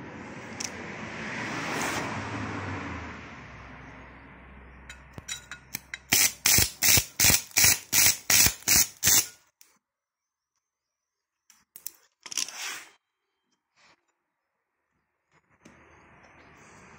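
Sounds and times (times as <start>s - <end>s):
welding arc crackling: 6.1s - 9.3s.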